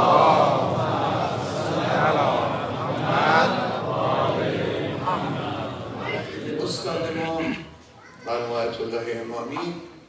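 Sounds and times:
men chanting together: 0.0s - 6.4s.

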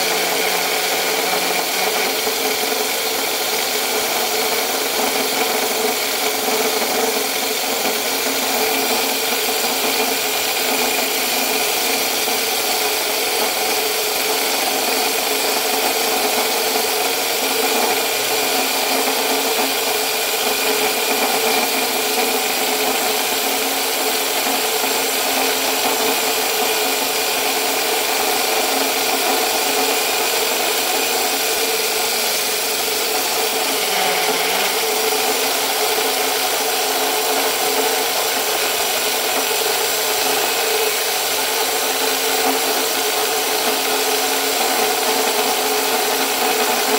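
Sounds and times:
electric drill motor whine: 0.0s - 46.9s
core bit grinding stone: 24.1s - 46.9s.

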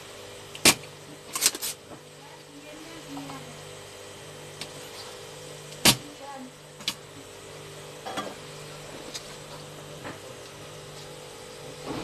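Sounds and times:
steady low hum: 0.0s - 12.0s
desoldering pump snap: 0.5s - 1.8s, 4.6s - 4.8s, 5.7s - 6.1s.

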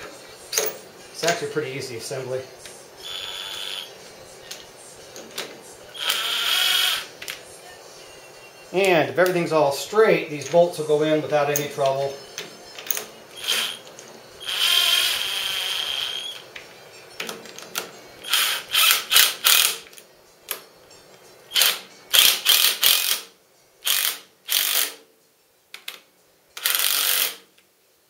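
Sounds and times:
power drill driving bolts: 3.0s - 3.9s, 6.0s - 7.4s, 12.9s - 16.4s, 26.6s - 27.4s.

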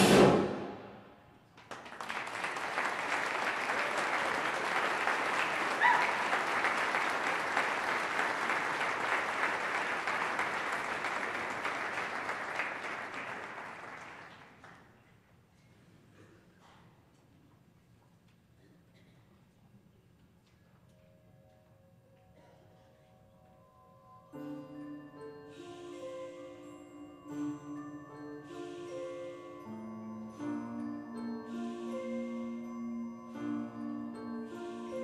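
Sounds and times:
audience applause: 1.6s - 14.8s.

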